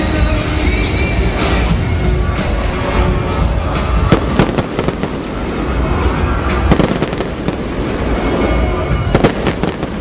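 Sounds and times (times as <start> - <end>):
music: 0.0 - 10.0
low rumble: 3.1 - 9.1
fireworks bursting: 3.4 - 10.0
fireworks crackle: 3.4 - 10.0.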